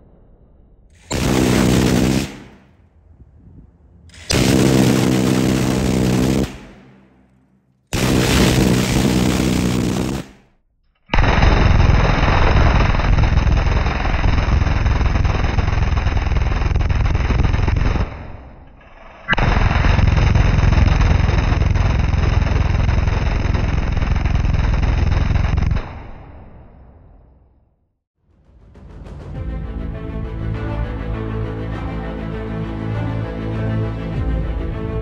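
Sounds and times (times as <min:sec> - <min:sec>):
gunfire echo: 0:00.0 - 0:03.4, 0:04.1 - 0:10.5
minigun firing bursts: 0:01.0 - 0:02.8, 0:04.1 - 0:10.5.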